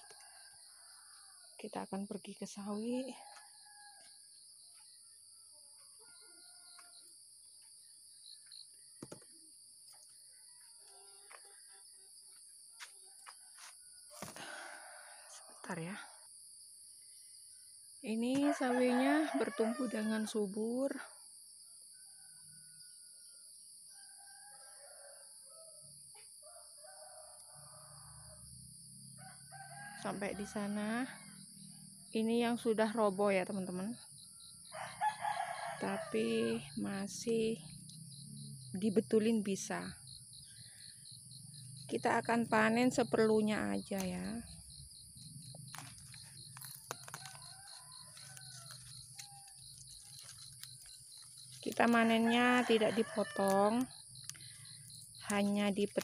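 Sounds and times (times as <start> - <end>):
insects trilling: 0.0 - 56.0
distant roosters crowing: 18.2 - 20.4, 23.9 - 25.8, 26.4 - 32.0, 34.2 - 38.5, 39.6 - 56.0
faint clicks of plants handled: 45.7 - 51.9.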